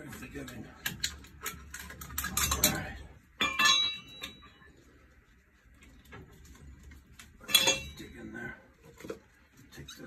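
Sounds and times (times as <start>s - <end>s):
metal tools clinking: 0.0s - 4.8s, 6.4s - 8.4s.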